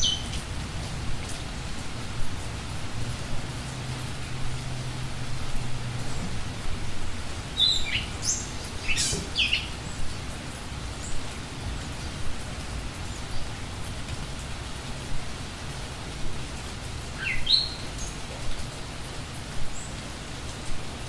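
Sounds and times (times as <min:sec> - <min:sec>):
small birds chirping: 0:00.0 - 0:01.4, 0:07.3 - 0:13.7, 0:16.7 - 0:20.6.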